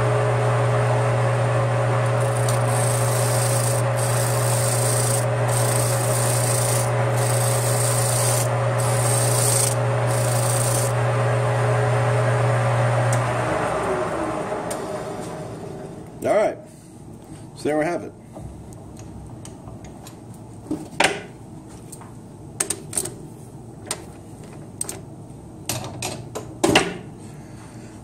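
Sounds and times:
metal lathe humming: 2.0s - 11.0s
wire brush scrubbing metal: 2.2s - 11.0s.

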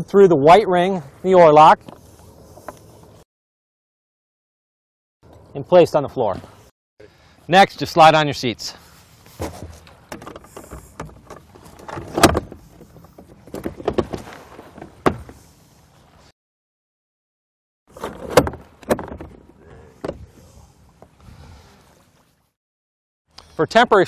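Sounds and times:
plastic seat knocking and scraping: 9.4s - 12.6s, 13.2s - 15.4s.

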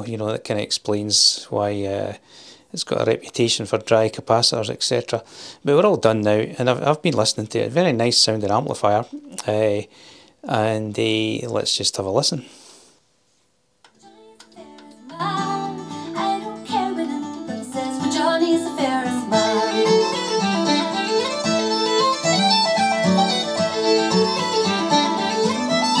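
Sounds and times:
music through amplifier: 14.0s - 26.0s.

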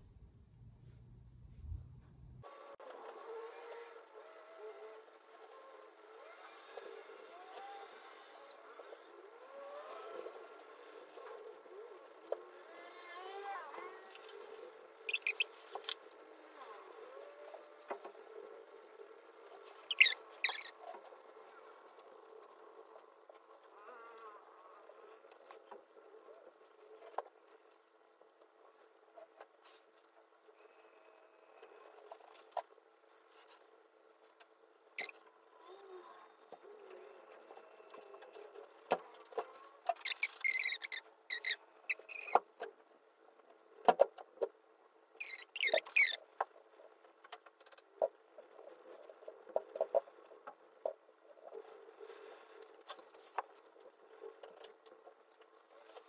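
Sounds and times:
high squeaky chirps: 15.1s - 15.7s, 19.7s - 20.8s, 35.0s - 35.2s, 40.0s - 42.4s, 45.2s - 46.2s.

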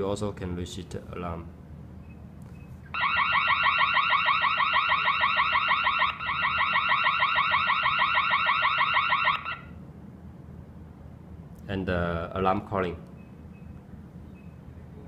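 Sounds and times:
electronic alarm warble: 3.0s - 9.8s.

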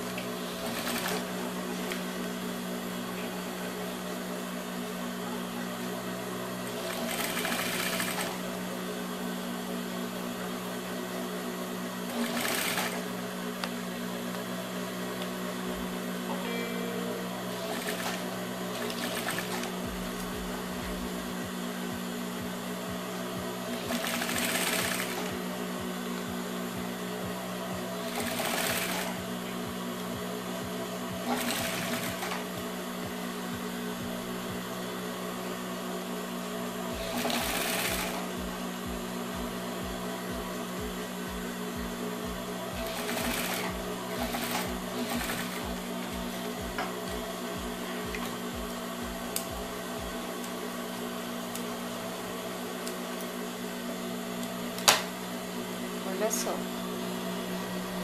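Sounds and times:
motor hum: 0.0s - 58.0s
sewing machine stitching: 0.1s - 2.0s, 6.6s - 8.4s, 12.0s - 13.1s, 17.5s - 19.8s, 23.7s - 25.4s, 28.0s - 29.2s, 31.2s - 32.5s, 37.0s - 38.3s, 42.8s - 45.8s.

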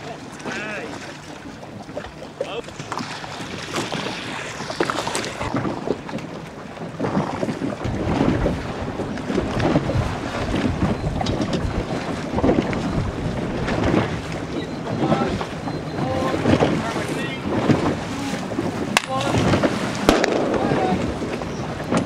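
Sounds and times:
water splashing against boat hull: 0.0s - 22.0s
wind buffeting microphone: 0.0s - 22.0s
faint voices: 14.8s - 17.5s.

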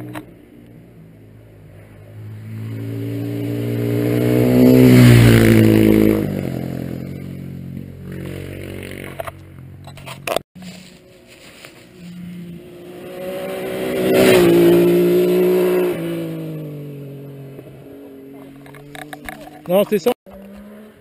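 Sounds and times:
motorcycle engine passing by: 1.8s - 9.6s, 12.0s - 19.6s.

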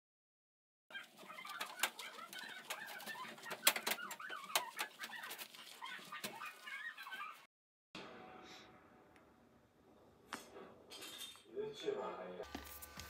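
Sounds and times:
squeaky chirping from rubbing: 0.9s - 7.5s.

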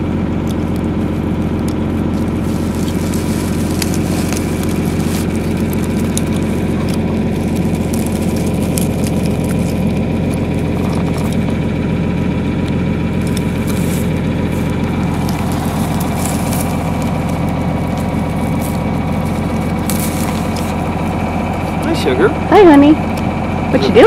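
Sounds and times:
tractor engine idling: 0.0s - 24.0s
stubble and soil scraped by hand: 2.1s - 11.6s, 13.2s - 21.8s.

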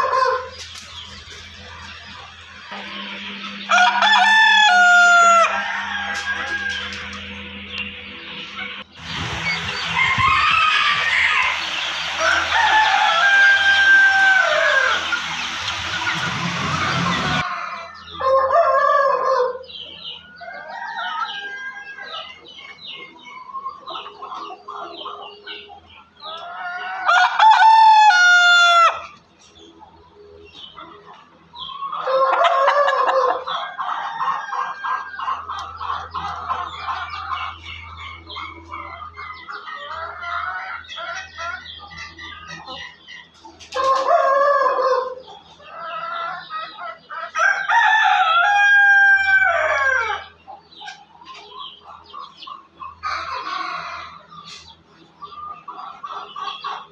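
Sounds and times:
rooster crowing: 0.0s - 0.5s, 2.7s - 7.6s, 9.4s - 22.3s, 26.5s - 29.1s, 32.0s - 35.5s, 47.3s - 50.3s
chickens clucking: 0.0s - 56.9s.

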